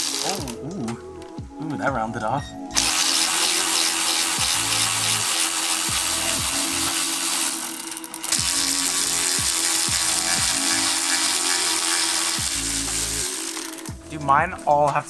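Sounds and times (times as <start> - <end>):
power tool running: 0.0 - 0.6, 2.8 - 14.0.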